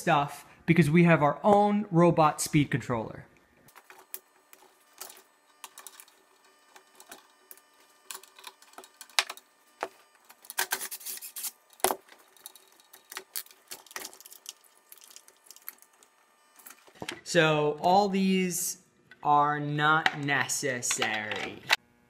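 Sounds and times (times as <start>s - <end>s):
hand tool clicking and scraping plastic: 10.2s - 17.2s.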